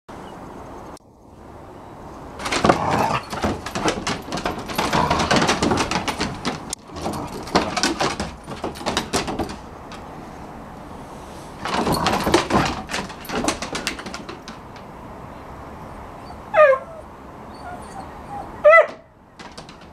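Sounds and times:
dog claws scrabbling on boards: 0:02.4 - 0:10.3, 0:11.6 - 0:15.0, 0:18.9 - 0:19.9.

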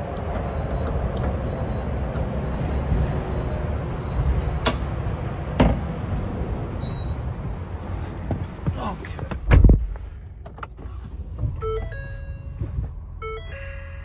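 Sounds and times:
steady low rumble: 0:01.5 - 0:14.0
sharp knocks in truck cab: 0:05.6 - 0:05.9.

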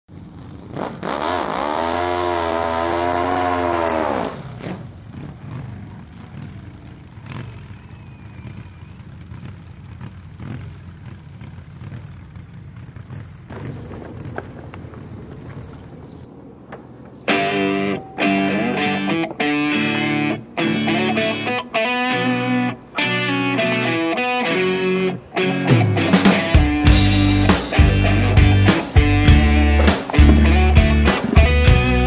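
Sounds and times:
small engine revving: 0:00.5 - 0:16.3
engine knocks: 0:05.1 - 0:17.3.

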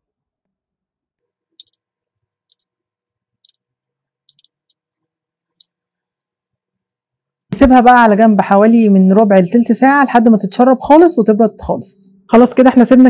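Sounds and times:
spoon clicking on ceramic bowl: 0:01.6 - 0:01.8.

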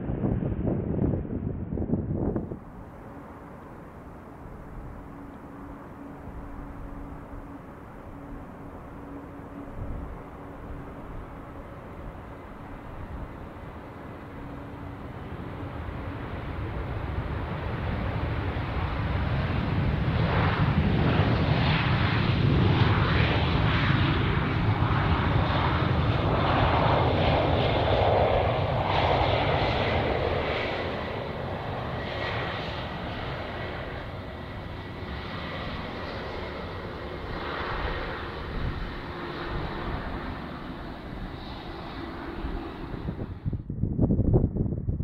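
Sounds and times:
jet airliner engine rumble: 0:00.0 - 0:45.0
faint steady whine: 0:02.2 - 0:19.6.

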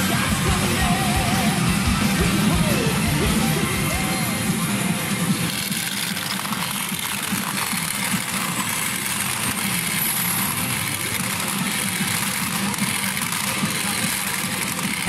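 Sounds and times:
clatter of steel balls in machines: 0:05.4 - 0:15.0.

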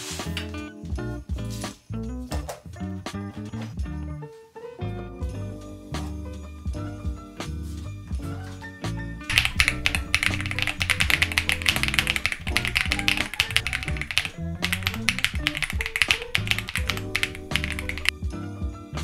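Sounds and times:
background music: 0:00.0 - 0:19.0
mechanical keyboard typing: 0:09.3 - 0:18.1.

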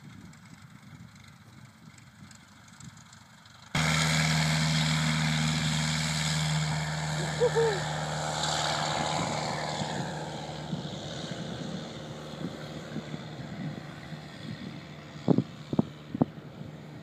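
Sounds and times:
light aircraft engine drone: 0:00.0 - 0:17.0
wind buffeting microphone: 0:08.8 - 0:17.0.

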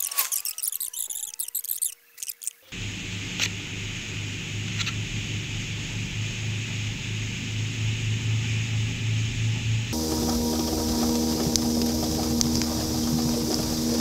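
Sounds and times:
faint high chirping: 0:00.0 - 0:02.7
boat engine running: 0:02.7 - 0:14.0
wind and water rushing: 0:10.0 - 0:14.0.

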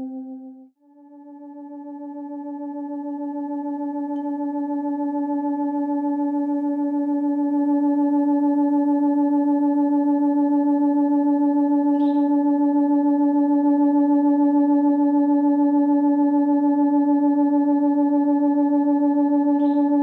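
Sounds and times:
steady tone with overtones: 0:00.0 - 0:00.6.

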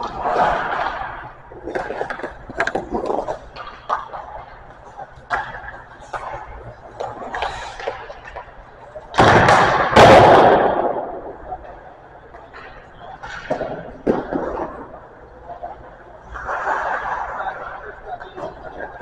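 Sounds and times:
sharp hockey clacks: 0:00.4 - 0:11.1
loud bangs ringing in ice rink: 0:09.1 - 0:11.4.

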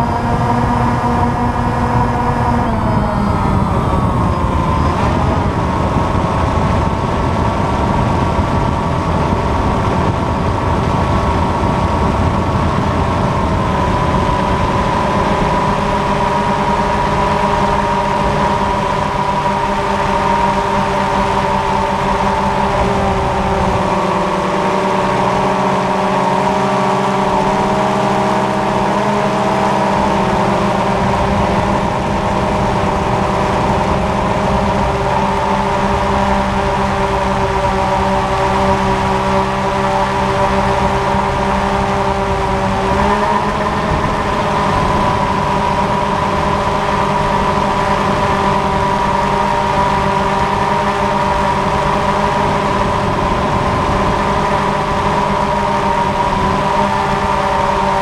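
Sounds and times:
drone propellers whining: 0:00.0 - 0:58.0.

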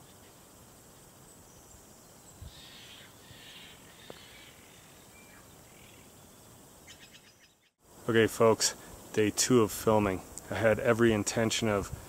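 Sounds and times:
high bird calls: 0:01.5 - 0:07.8.

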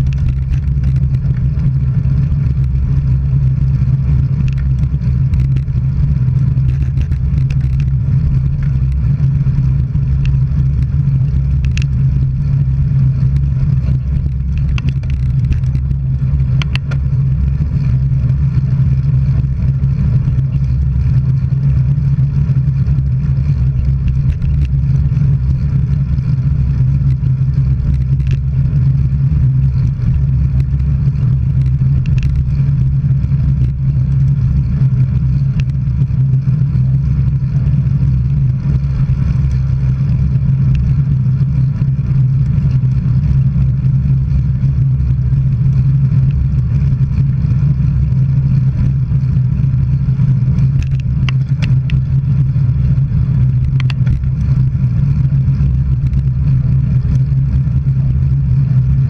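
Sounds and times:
bicycle rolling on road: 0:00.0 - 0:59.0.

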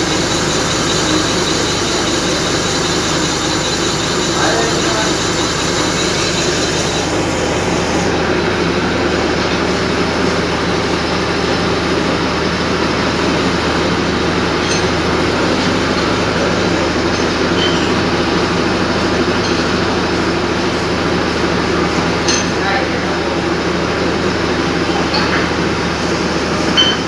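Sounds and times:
boring machine cutting metal: 0:00.0 - 0:09.6.

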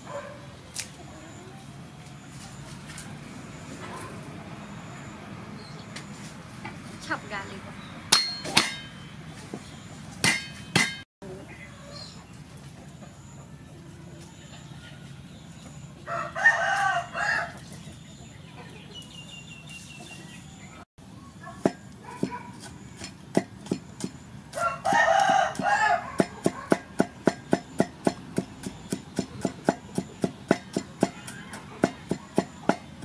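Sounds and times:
cleaver chopping on wooden block: 0:08.1 - 0:08.9, 0:10.2 - 0:11.0, 0:24.9 - 0:33.0
rooster crowing: 0:16.0 - 0:17.7, 0:24.5 - 0:26.7.

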